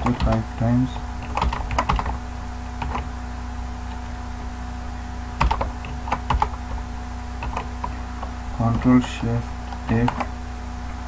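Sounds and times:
computer keyboard keystrokes: 0:00.0 - 0:00.4, 0:01.2 - 0:02.2, 0:02.8 - 0:03.1, 0:05.4 - 0:06.6, 0:07.4 - 0:08.3, 0:09.8 - 0:10.3
low electrical hum: 0:00.0 - 0:11.0.

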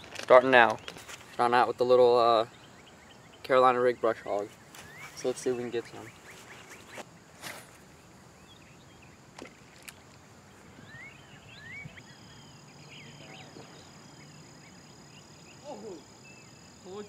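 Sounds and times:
bird chirps: 0:00.4 - 0:07.6, 0:08.3 - 0:17.0
thin steady high tone: 0:10.8 - 0:17.0.

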